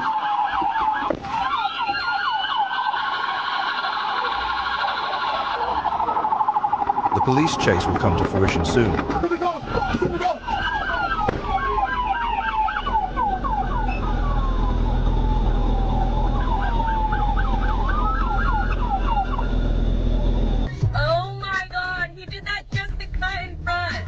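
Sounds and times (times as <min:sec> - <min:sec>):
police siren wail and yelp: 0:00.0 - 0:20.7
low steady rumble: 0:05.9 - 0:24.0.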